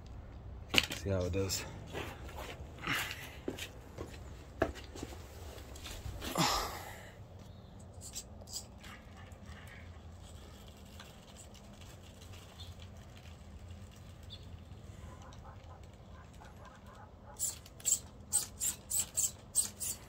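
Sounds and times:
rc car drivetrain hum and clicks: 7.8 - 20.0.

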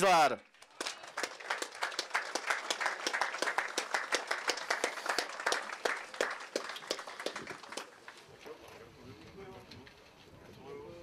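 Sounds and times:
audience applauding: 0.6 - 8.3.

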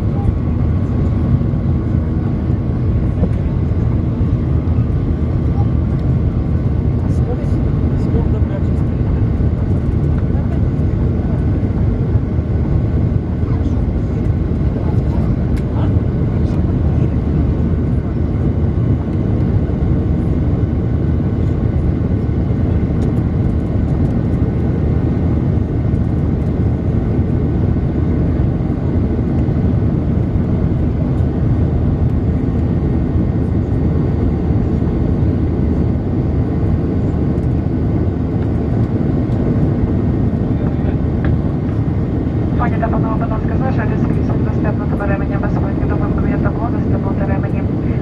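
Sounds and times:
airplane cabin engine noise: 0.0 - 48.0
faint steady whine: 21.2 - 48.0.

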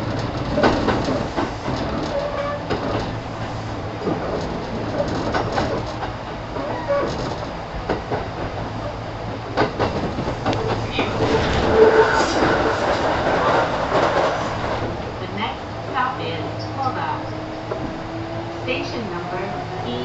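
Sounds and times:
wheels clicking over rail joints: 0.0 - 15.1
train interior low rumble: 0.0 - 20.0.

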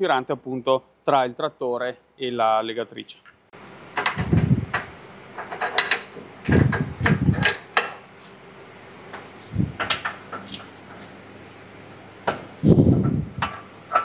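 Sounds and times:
metal clanks and knocks: 4.0 - 8.0, 9.8 - 10.6, 12.3 - 14.0.

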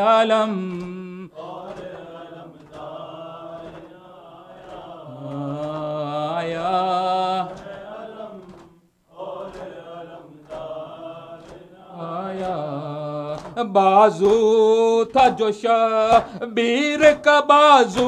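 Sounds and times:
rhythmic chest-beating strikes: 0.0 - 18.0.

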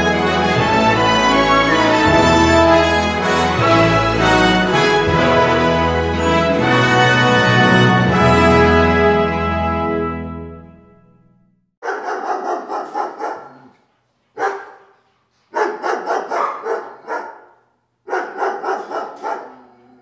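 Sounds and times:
dog barking: 11.8 - 20.0.

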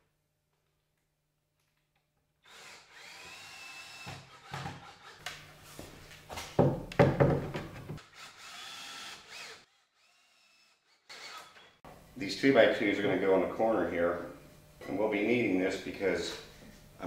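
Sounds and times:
cordless drill motor whining: 2.4 - 5.2, 8.0 - 11.8.

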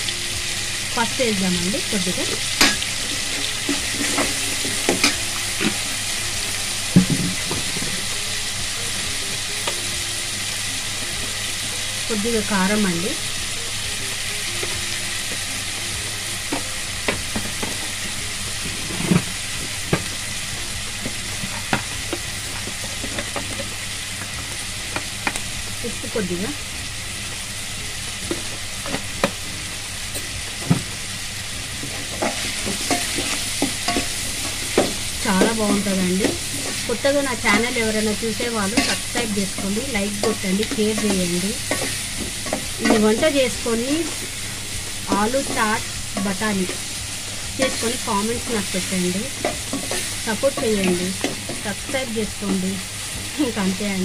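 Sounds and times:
vegetables sizzling in hot oil: 0.0 - 54.0
spoon scraping pan: 38.7 - 43.3.

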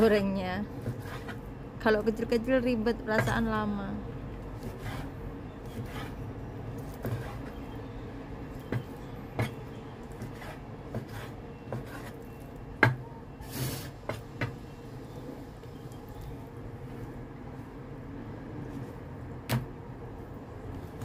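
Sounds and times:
blade scraping board: 0.8 - 1.4, 4.6 - 6.2, 6.9 - 7.6, 10.2 - 12.3.

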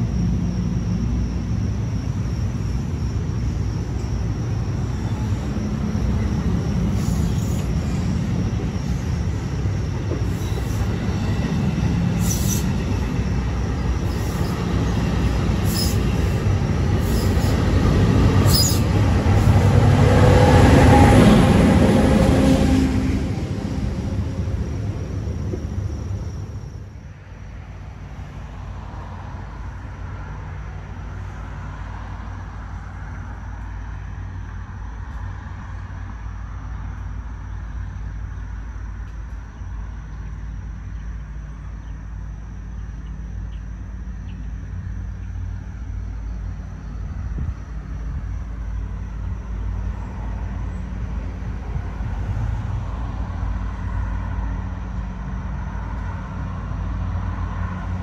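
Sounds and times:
diesel locomotive rumbling: 0.0 - 58.0.

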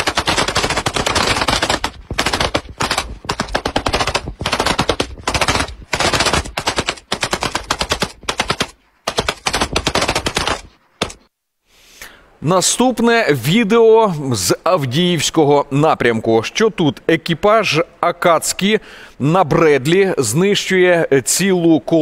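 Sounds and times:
automatic weapons firing bursts: 0.0 - 11.2.

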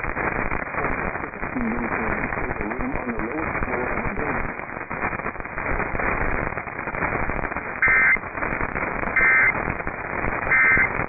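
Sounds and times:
crackling radio static: 0.0 - 11.0
faint garbled voice: 0.7 - 4.4.

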